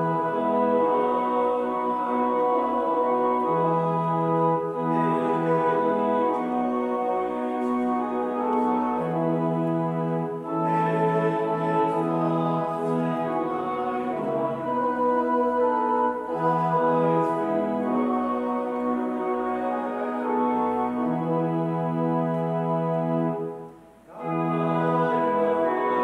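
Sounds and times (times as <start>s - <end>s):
church organ playing held chords: 0.0s - 26.0s.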